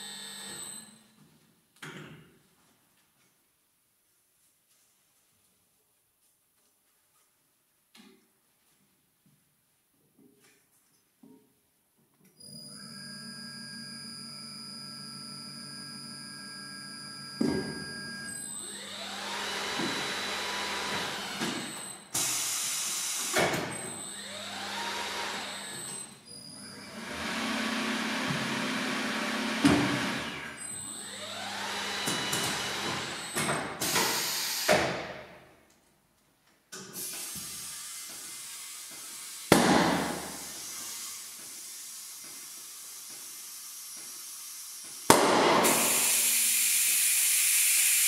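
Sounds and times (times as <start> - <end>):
air hiss bursts: 22.2 - 23.4, 33.8 - 35.1, 36.9 - 39.4, 45.1 - 48.0.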